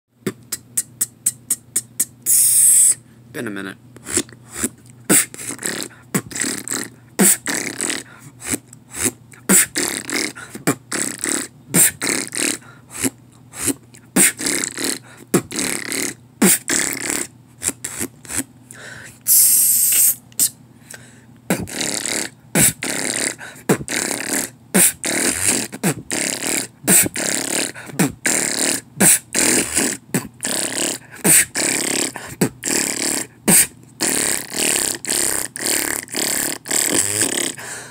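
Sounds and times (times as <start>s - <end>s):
beatboxing: 0.2s - 3.0s, 4.0s - 20.6s, 21.5s - 37.8s
mouth hissing sound: 1.5s - 3.0s, 19.2s - 20.6s, 21.7s - 37.6s.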